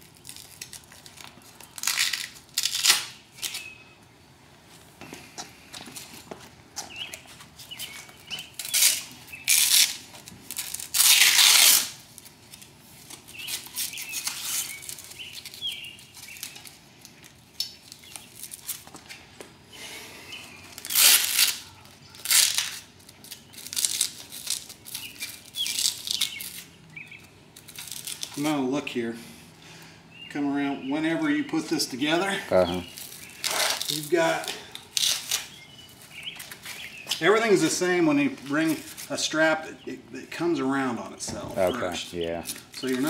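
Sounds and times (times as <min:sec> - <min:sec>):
velcro straps tearing: 0:00.0 - 0:03.7, 0:07.1 - 0:18.9, 0:20.7 - 0:28.5, 0:32.8 - 0:37.2.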